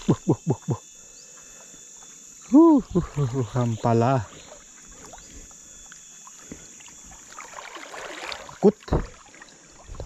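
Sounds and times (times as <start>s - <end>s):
river water splashing: 2.9s - 10.0s.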